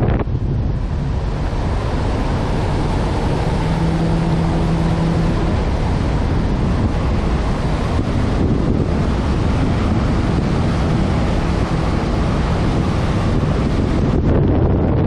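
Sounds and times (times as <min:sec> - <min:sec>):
low steady tone: 0:00.0 - 0:14.2
wind rushing over microphone: 0:00.0 - 0:15.0.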